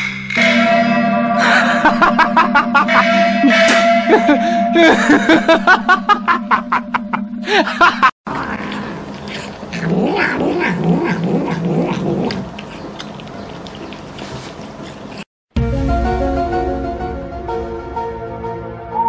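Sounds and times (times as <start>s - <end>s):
cat growling and yowling: 8.3s - 12.5s.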